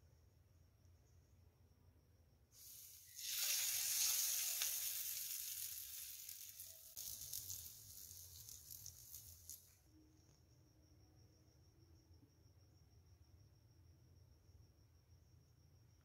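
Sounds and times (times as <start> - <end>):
hot oil sizzling and crackling: 2.6 - 9.8.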